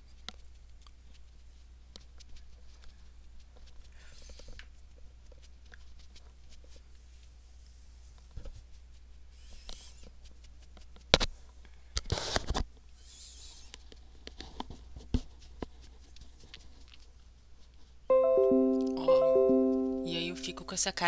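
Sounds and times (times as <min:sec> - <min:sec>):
rustles and taps on microphone: 0:00.0 - 0:07.4, 0:08.1 - 0:12.8, 0:13.8 - 0:17.9.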